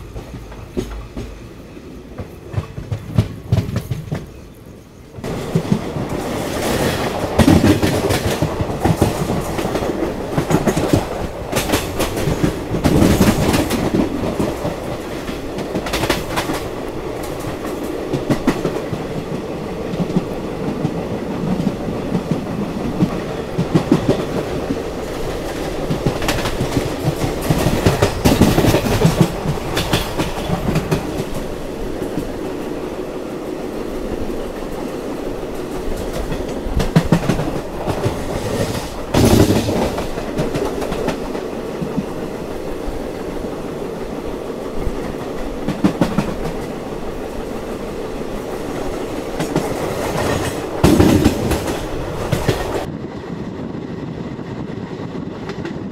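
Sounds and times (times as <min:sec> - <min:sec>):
train running rumble: 0:00.0 - 0:55.9
wheels clattering over rail joints: 0:19.9 - 0:32.3.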